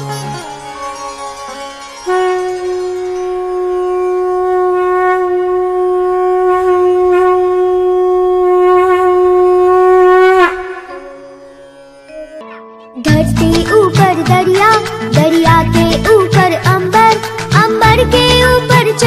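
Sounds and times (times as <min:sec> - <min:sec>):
conch shell blown: 0:01.7 - 0:12.4.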